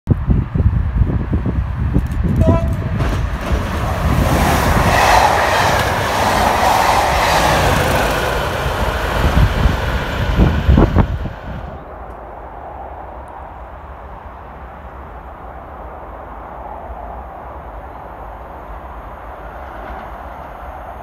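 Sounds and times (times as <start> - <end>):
wind buffeting microphone: 0.1 - 19.0
diesel locomotive passing: 1.2 - 12.4
brief high tone: 2.4 - 3.0.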